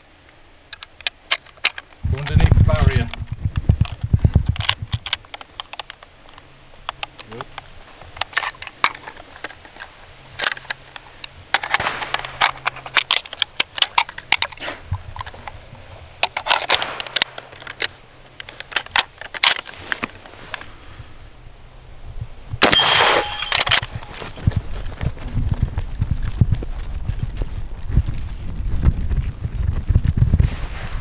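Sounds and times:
metallic rifle action clicks: 8.2 - 15.6, 16.2 - 19.7, 22.6 - 24.1
rifle firing: 11.7 - 12.4, 16.8 - 17.4, 22.6 - 24.1.

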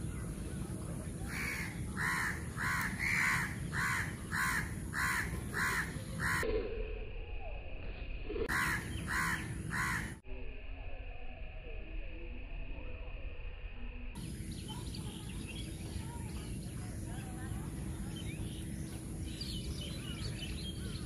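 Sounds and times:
crow cawing: 1.3 - 6.4, 8.5 - 10.2.

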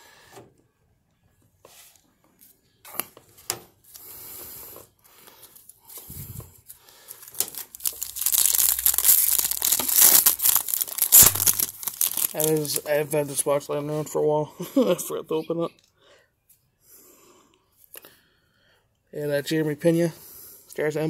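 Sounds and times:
trading cards rustling: 5.2 - 12.9
foil wrapper tearing and crinkling: 6.6 - 12.9.

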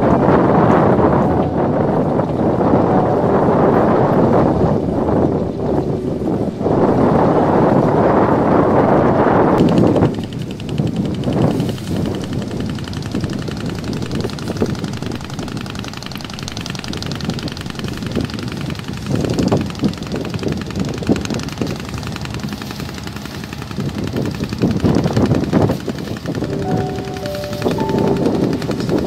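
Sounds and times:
boat engine rattling: 0.0 - 29.0
wind buffeting microphone: 0.0 - 29.0.

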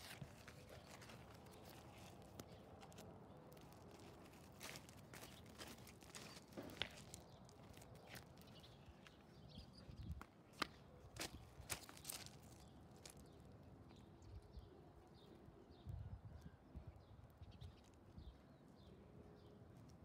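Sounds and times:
soft clicks and crinkles: 0.0 - 9.3.

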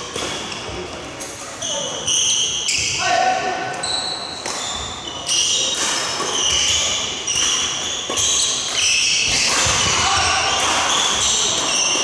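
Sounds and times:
racket hitting shuttlecock: 5.7 - 12.0.

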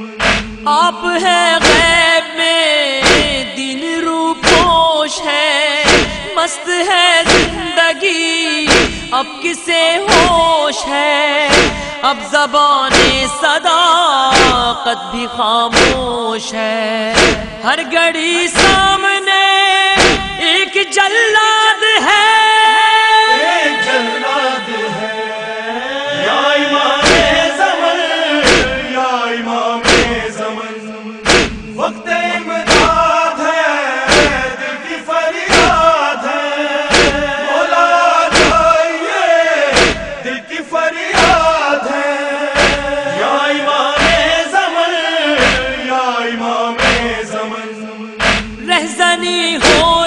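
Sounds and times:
men chanting in unison: 0.0 - 50.0
chest beating slaps: 0.2 - 0.7, 1.6 - 2.0, 3.0 - 3.5, 4.4 - 4.9, 5.8 - 6.3, 7.2 - 7.7, 8.6 - 9.2, 10.1 - 10.5, 11.5 - 12.0, 12.9 - 13.3, 14.3 - 14.8, 15.7 - 16.2, 17.1 - 17.6, 18.5 - 19.0, 20.0 - 20.4, 27.0 - 27.5, 28.4 - 28.9, 29.8 - 30.3, 31.2 - 31.8, 32.6 - 33.2, 34.1 - 34.6, 35.5 - 36.0, 36.9 - 37.4, 38.2 - 38.8, 39.6 - 40.3, 41.1 - 41.6, 42.6 - 43.0, 43.9 - 44.4, 45.4 - 45.8, 46.8 - 47.2, 48.2 - 48.6, 49.6 - 50.0.

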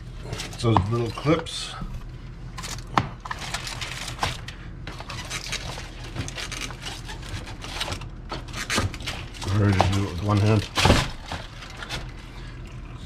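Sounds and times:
steady low hum: 0.0 - 13.0
aluminium foil crinkling: 2.5 - 12.8.

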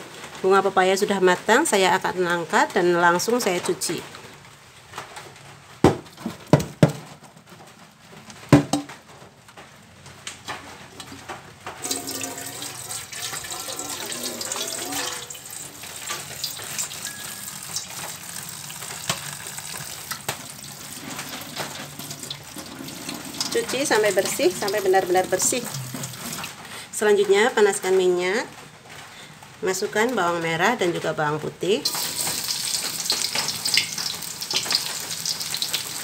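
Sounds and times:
water pouring into colander: 11.8 - 26.6, 31.8 - 36.0.

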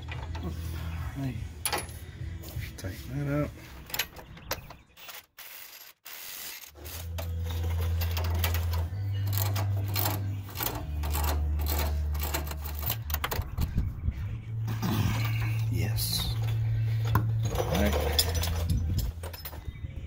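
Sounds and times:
metal parts clicking and knocking: 0.0 - 0.5, 3.8 - 13.8, 15.0 - 19.8
low hum: 6.8 - 20.0.

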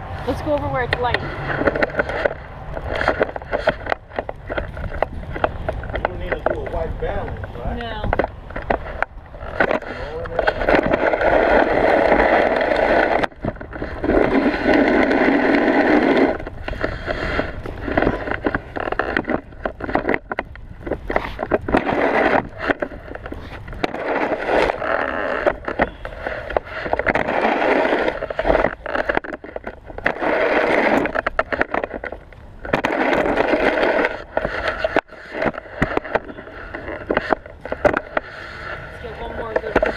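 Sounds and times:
snow shovel scraping ground: 9.4 - 20.2, 20.8 - 39.9.

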